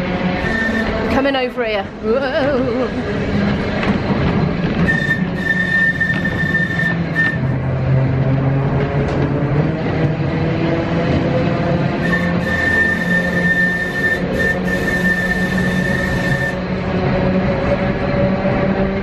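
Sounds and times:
low motor hum: 0.0s - 19.0s
tram rumble and rattle: 0.0s - 19.0s
high wheel squeal: 0.4s - 1.3s, 4.8s - 7.6s, 12.0s - 16.6s.

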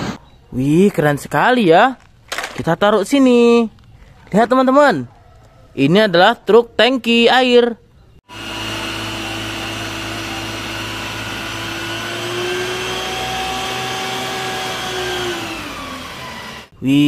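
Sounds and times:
truck engine and pump drone: 8.3s - 16.7s.

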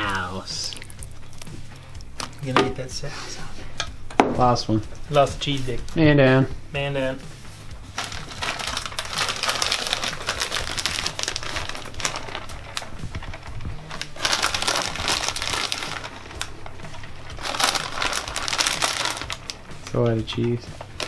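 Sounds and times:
plastic bag crinkling: 7.9s - 21.0s.

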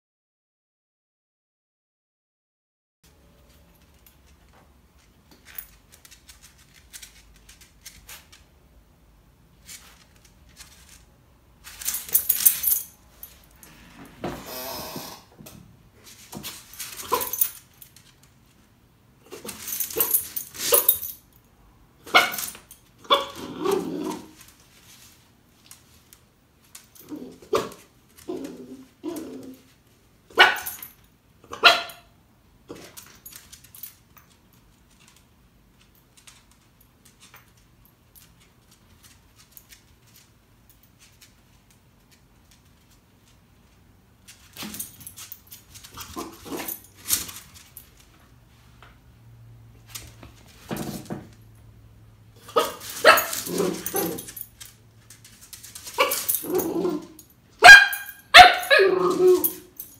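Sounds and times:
dog barking: 23.1s - 23.4s, 30.4s - 30.8s, 31.5s - 32.1s, 52.5s - 54.2s, 57.6s - 59.4s.

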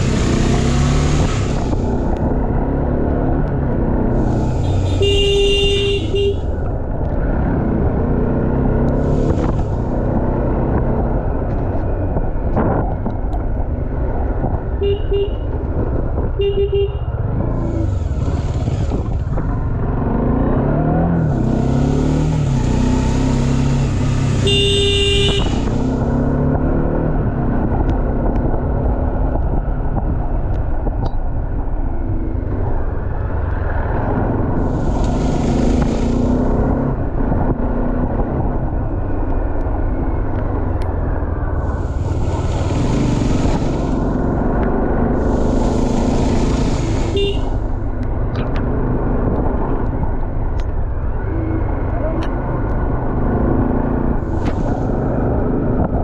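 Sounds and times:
motorcycle engine revving: 0.0s - 11.3s, 17.1s - 29.3s, 31.9s - 50.2s
wind rush: 0.0s - 14.9s, 23.6s - 51.8s, 52.5s - 56.0s
vehicle horn beeps: 4.6s - 6.5s, 14.8s - 15.5s, 16.4s - 17.1s, 24.4s - 25.7s, 47.1s - 47.6s.

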